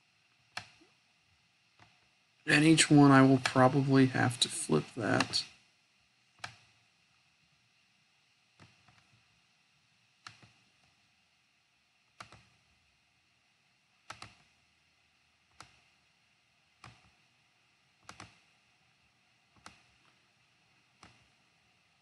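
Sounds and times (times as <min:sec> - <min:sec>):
faint steady hiss: 0:00.0 - 0:22.0
computer mouse clicking: 0:00.5 - 0:00.9, 0:01.8 - 0:02.0, 0:05.2 - 0:05.4, 0:06.4 - 0:06.8, 0:08.6 - 0:09.2, 0:10.2 - 0:11.0, 0:12.1 - 0:12.6, 0:14.0 - 0:14.6, 0:15.5 - 0:15.9, 0:16.8 - 0:17.2, 0:18.0 - 0:18.6, 0:19.5 - 0:20.2, 0:21.0 - 0:21.4.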